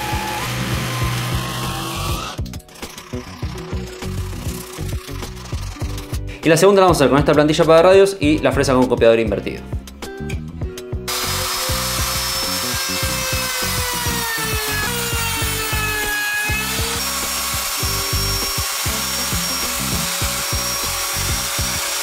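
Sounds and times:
router cutting wood: 0:00.0 - 0:06.1, 0:11.1 - 0:22.0.

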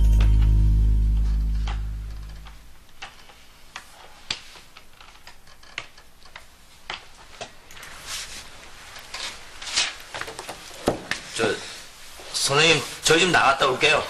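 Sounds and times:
background music: 0:00.0 - 0:02.7.

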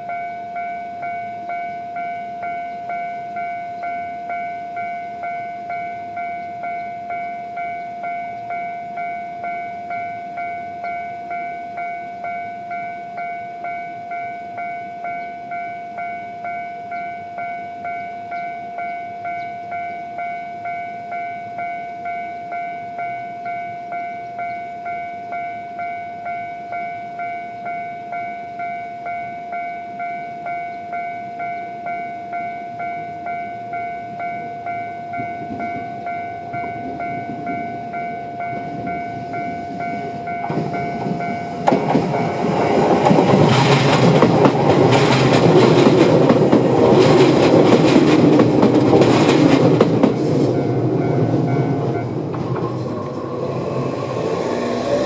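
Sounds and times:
electronic level-crossing bell ringing: 0:00.0 - 0:42.8, 0:43.6 - 0:55.0
train wheels clattering over rails: 0:38.6 - 0:55.0.

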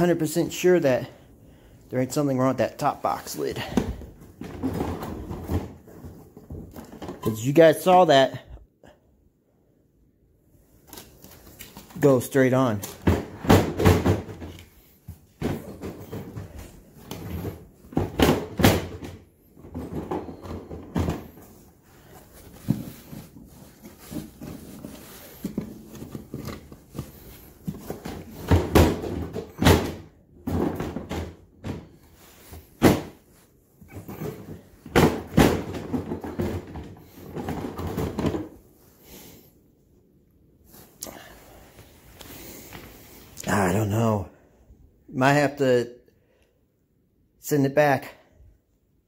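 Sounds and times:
plastic tool boxes knocking: 0:03.6 - 0:07.4, 0:12.8 - 0:32.1, 0:33.9 - 0:38.6.

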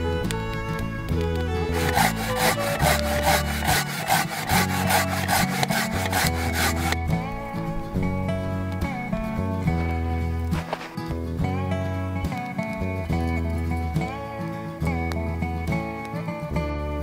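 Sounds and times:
hand saw cutting log: 0:00.0 - 0:07.7.

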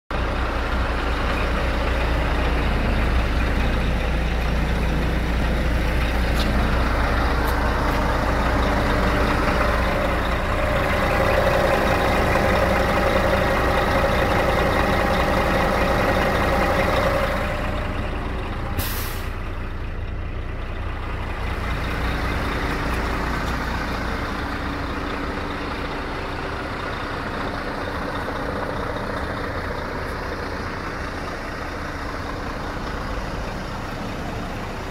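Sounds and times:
diesel truck engine idling: 0:00.1 - 0:34.9
compressed air hiss: 0:18.8 - 0:19.4.

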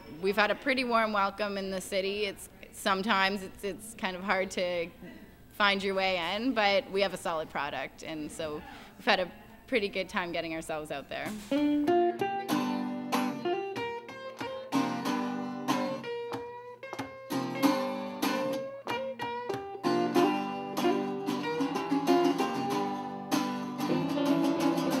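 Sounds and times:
acoustic guitars strumming chords: 0:11.3 - 0:25.0
picked guitar lead line: 0:11.3 - 0:25.0.

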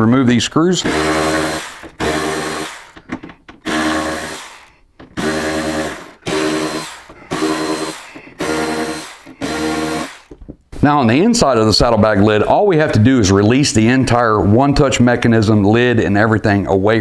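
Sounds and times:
power ratchet motor whine: 0:00.8 - 0:03.0, 0:03.6 - 0:10.4.

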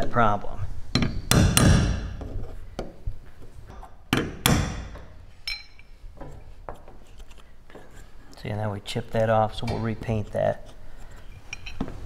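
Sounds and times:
hammer striking steel punch: 0:01.0 - 0:02.3, 0:03.7 - 0:05.7.

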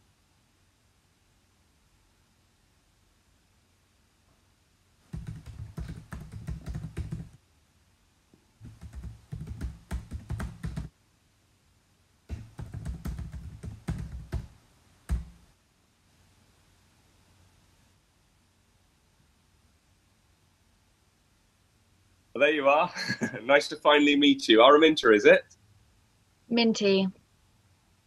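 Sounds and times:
typing on a keyboard: 0:05.1 - 0:07.4, 0:08.6 - 0:10.9, 0:12.3 - 0:15.4.

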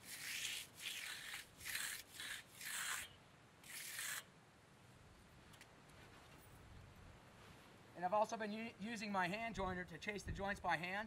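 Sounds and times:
steel trowel scraping concrete: 0:00.0 - 0:04.3.

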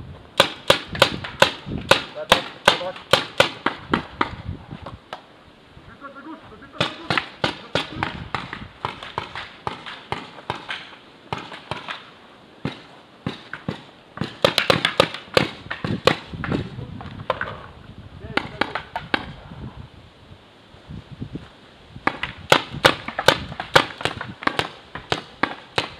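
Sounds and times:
paintball markers firing: 0:06.8 - 0:16.6.

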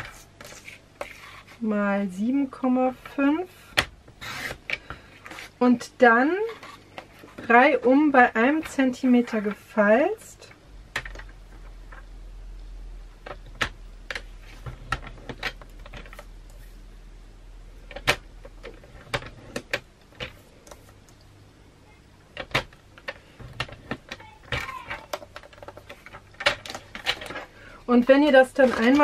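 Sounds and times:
card scraping: 0:04.2 - 0:05.6.

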